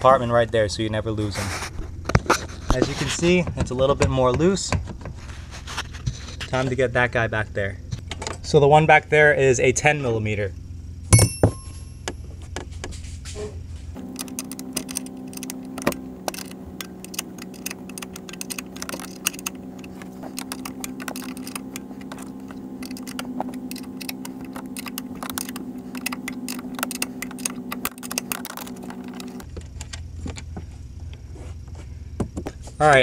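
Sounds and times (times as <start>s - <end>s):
steady low hum: 10.4s - 32.2s
ratchet wrench clicking: 14.0s - 29.4s.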